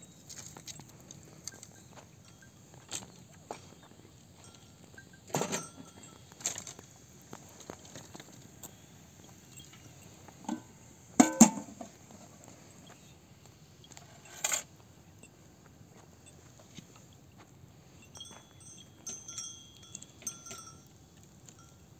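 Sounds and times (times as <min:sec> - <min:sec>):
metallic ring: 0:01.7 - 0:06.8, 0:09.5 - 0:11.9, 0:14.1 - 0:14.7, 0:18.0 - 0:21.8
metal pot and lid clanking: 0:10.4 - 0:11.9.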